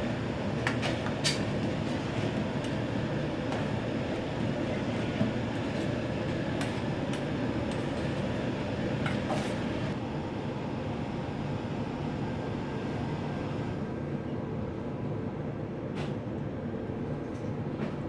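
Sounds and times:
wok burner running: 0.0 - 14.0.

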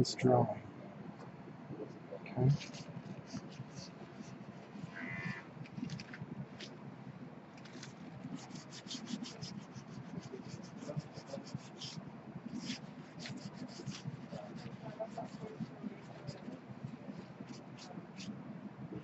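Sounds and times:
charcoal scratching on paper: 2.6 - 4.4, 7.6 - 18.3.

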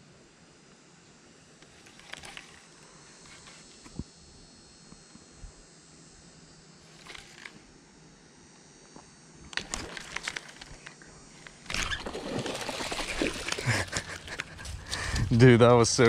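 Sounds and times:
fish splashing at surface: 11.7 - 14.0.

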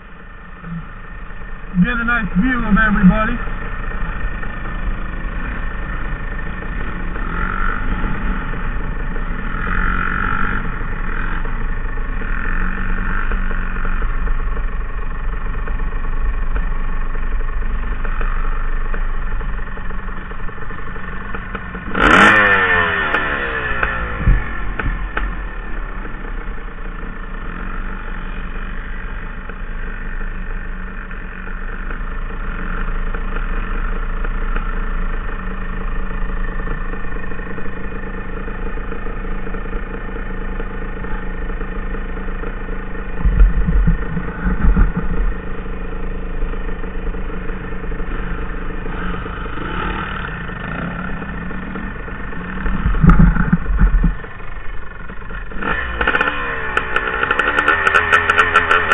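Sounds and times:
small engine idling: 0.0 - 58.9
deep low rumble: 23.8 - 26.6, 35.9 - 56.0.

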